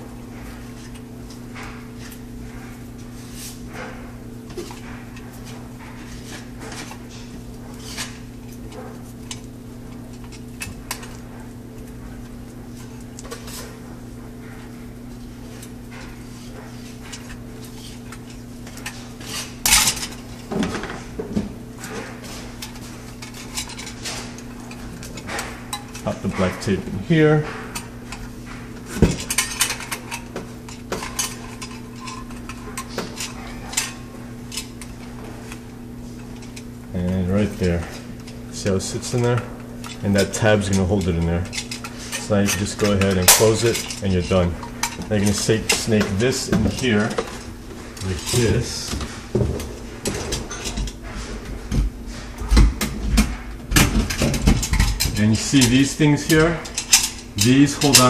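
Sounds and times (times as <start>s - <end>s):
steady low hum: 0.0s - 58.0s
tape and metal rustling and clicking: 0.4s - 58.0s.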